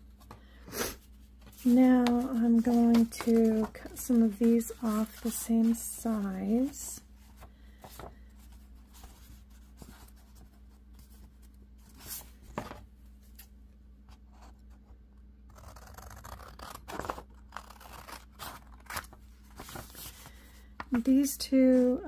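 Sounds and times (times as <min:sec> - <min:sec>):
paper rustling: 0:01.2 - 0:13.5, 0:17.0 - 0:21.1
scissors snipping paper: 0:15.5 - 0:19.1.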